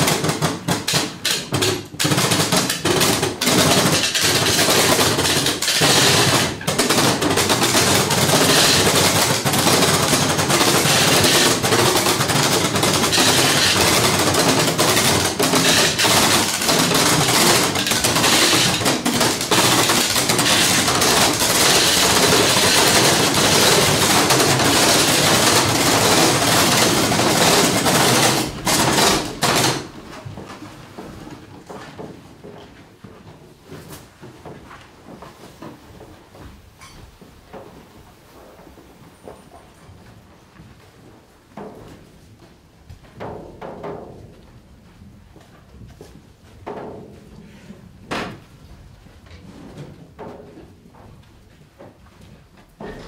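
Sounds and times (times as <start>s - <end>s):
clatter of rapid knocks and rattling: 0.0s - 32.5s, 43.1s - 44.4s, 46.0s - 53.0s.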